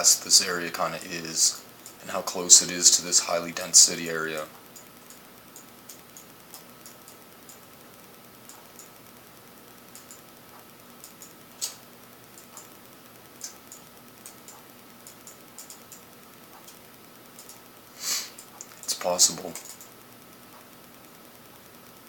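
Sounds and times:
faint steady hum: 0:00.0 - 0:22.0
computer mouse clicks: 0:04.5 - 0:07.6, 0:08.5 - 0:09.0, 0:09.9 - 0:11.8, 0:12.4 - 0:12.7, 0:13.4 - 0:16.8, 0:17.4 - 0:17.7, 0:18.4 - 0:19.9.

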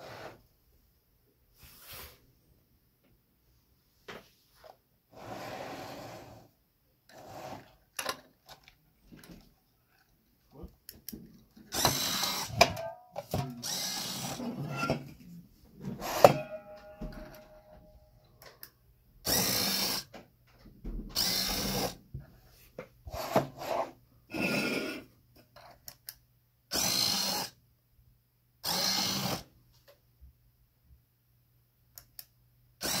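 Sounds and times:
small electric motor turning: 0:11.7 - 0:12.6, 0:13.6 - 0:14.4, 0:19.3 - 0:20.0, 0:21.2 - 0:22.0, 0:26.7 - 0:27.5, 0:28.6 - 0:29.4.

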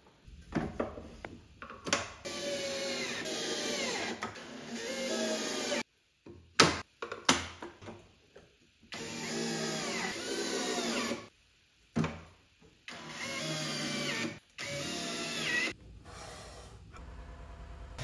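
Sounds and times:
cordless drill motor whirring: 0:12.9 - 0:15.7.

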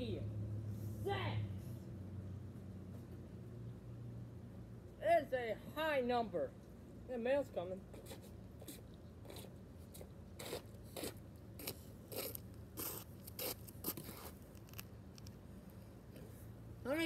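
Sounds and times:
footsteps on asphalt: 0:08.6 - 0:14.9.

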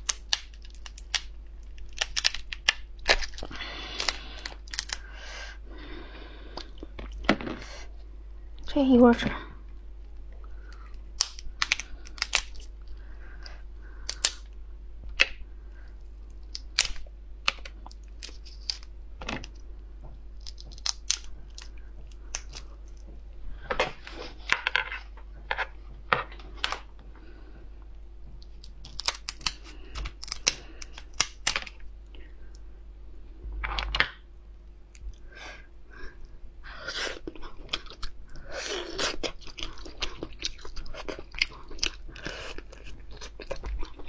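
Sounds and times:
lobster shells cracking: 0:00.0 - 0:05.2, 0:10.6 - 0:14.5, 0:16.3 - 0:19.6, 0:20.4 - 0:23.0, 0:28.4 - 0:31.8.

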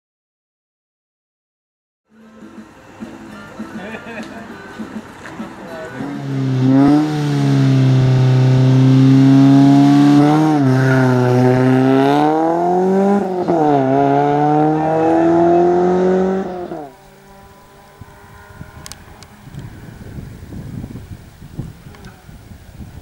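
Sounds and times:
car engine accelerating hard: 0:05.8 - 0:20.6.

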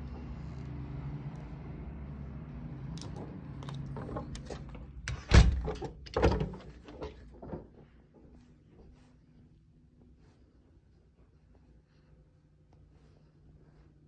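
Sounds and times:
low outdoor hum: 0:00.0 - 0:14.0
door handle clicks and rattles: 0:03.0 - 0:07.1
door shutting thump: 0:04.4 - 0:06.6.

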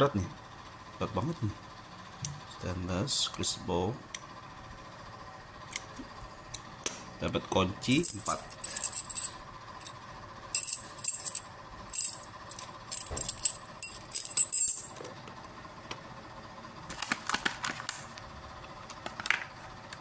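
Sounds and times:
keys jingling and clinking: 0:07.9 - 0:10.0, 0:10.6 - 0:15.0.

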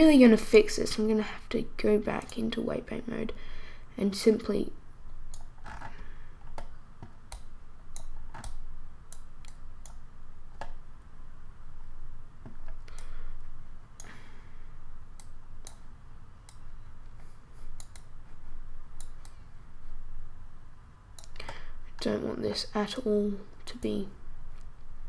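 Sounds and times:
steady low hum: 0:00.0 - 0:25.0
mouse and keyboard clicks: 0:05.3 - 0:10.8, 0:17.7 - 0:18.1.

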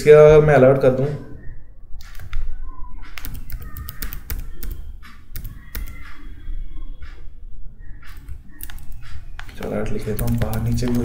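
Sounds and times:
keyboard keys clicking: 0:03.0 - 0:06.4, 0:08.0 - 0:11.0.

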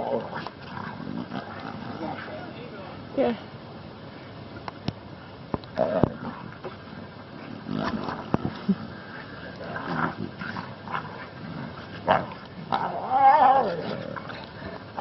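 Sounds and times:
wavering whining cry: 0:05.8 - 0:15.0.

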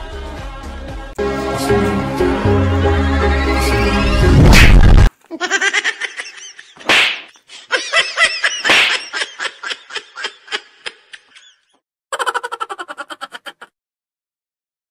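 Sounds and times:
person laughing: 0:05.2 - 0:13.8.

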